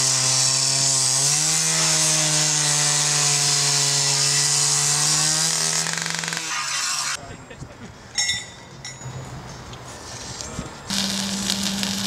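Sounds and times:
cut-off saw engine: 0:10.9 - 0:12.0.

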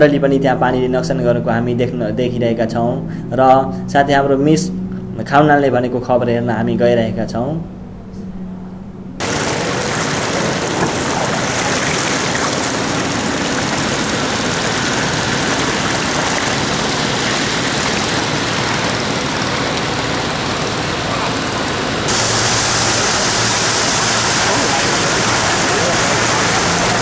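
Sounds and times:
vehicle engines running: 0:00.0 - 0:27.0
water hissing and washing: 0:09.2 - 0:27.0.

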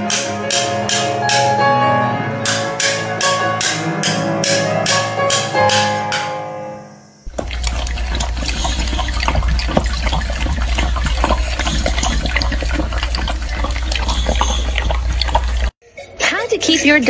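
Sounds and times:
electronic keyboard music: 0:00.0 - 0:07.2
dog lapping from metal bowl: 0:07.3 - 0:15.8.

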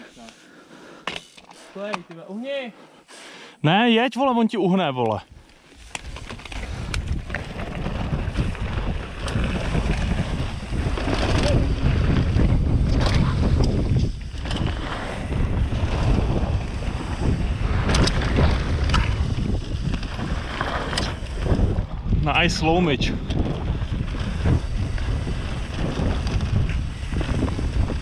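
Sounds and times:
bike rattling over stones: 0:05.7 - 0:28.0
wind rushing over microphone: 0:05.8 - 0:28.0.

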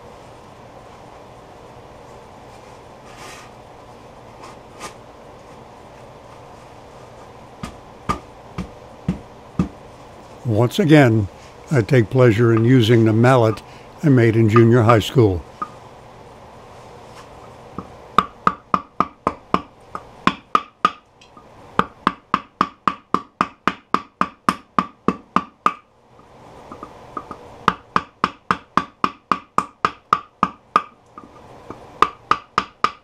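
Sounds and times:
mallet knocking chisel handle: 0:26.7 - 0:33.0.

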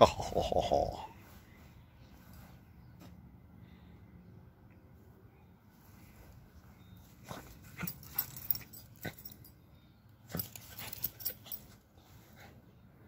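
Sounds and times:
small dog play noises: 0:06.6 - 0:09.6, 0:10.2 - 0:12.7.

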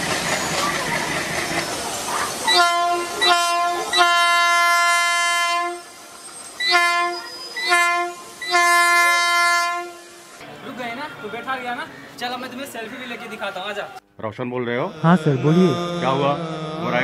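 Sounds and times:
train running: 0:00.0 - 0:13.6
locomotive horn blasts: 0:02.5 - 0:05.9, 0:06.6 - 0:10.3.

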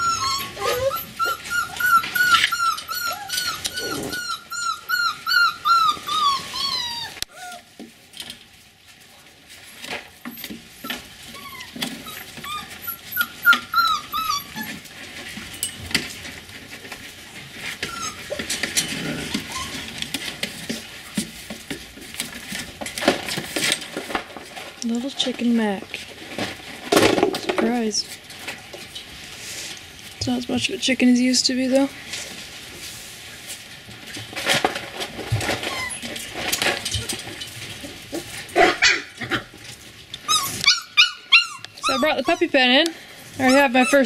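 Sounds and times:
puppies whining: 0:00.0 - 0:07.8, 0:09.6 - 0:15.0, 0:17.5 - 0:20.3, 0:35.4 - 0:39.5, 0:40.2 - 0:44.0
clicks and rustling: 0:14.5 - 0:30.4, 0:33.4 - 0:38.6.

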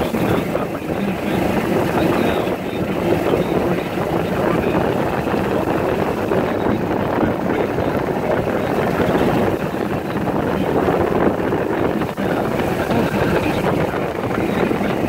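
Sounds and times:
golf cart driving rumble: 0:00.0 - 0:15.0
wind buffeting microphone: 0:00.0 - 0:15.0.

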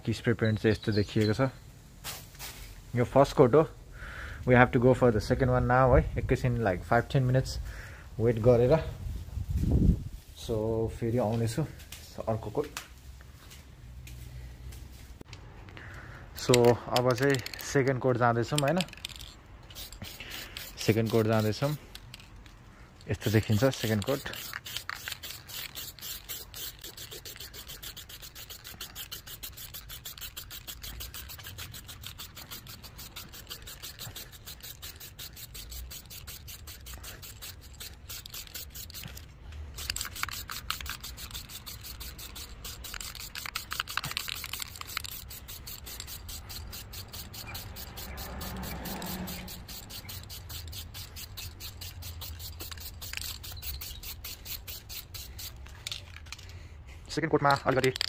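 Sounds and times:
spray can hissing: 0:19.6 - 0:22.0, 0:23.1 - 0:55.9.

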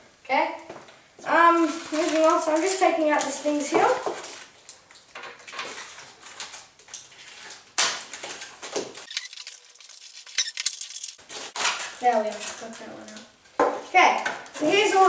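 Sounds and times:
packaging rustling and crinkling: 0:01.4 - 0:13.2
light clatters of small parts: 0:01.6 - 0:14.7.

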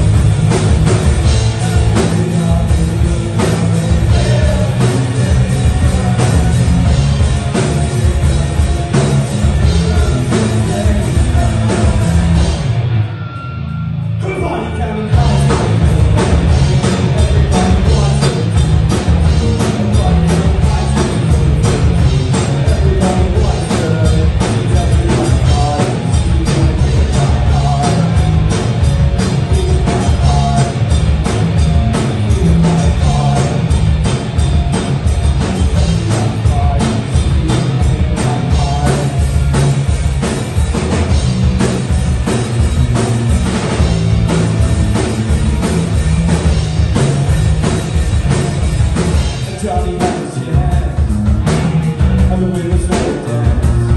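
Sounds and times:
drum kit beat: 0:00.0 - 0:13.0, 0:14.2 - 0:53.9
bass guitar: 0:00.0 - 0:53.9
electric guitars: 0:00.0 - 0:53.9.

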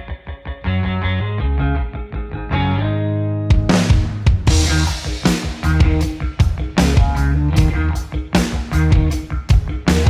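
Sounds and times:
bass guitar riff: 0:00.0 - 0:10.0
drum kit hits: 0:03.5 - 0:10.0.

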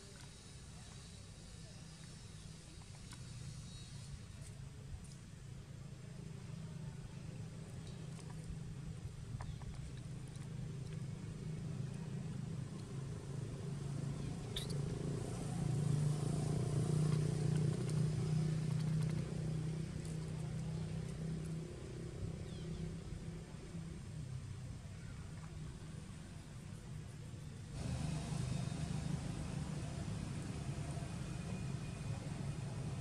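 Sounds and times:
vehicle engine humming: 0:07.5 - 0:24.1, 0:26.0 - 0:33.0.

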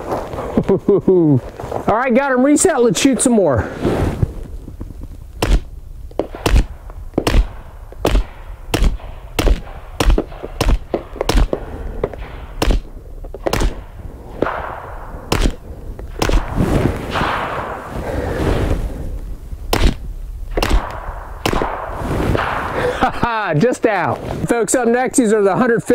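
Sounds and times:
suppressed pistol shots: 0:05.4 - 0:17.9, 0:19.7 - 0:22.8.

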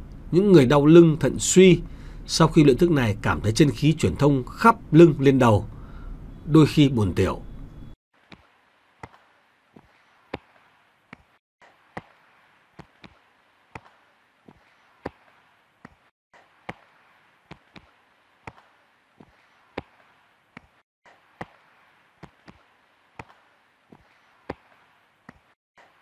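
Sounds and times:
palms slapping shoulders: 0:08.3 - 0:12.2, 0:12.8 - 0:20.8, 0:21.4 - 0:25.6.

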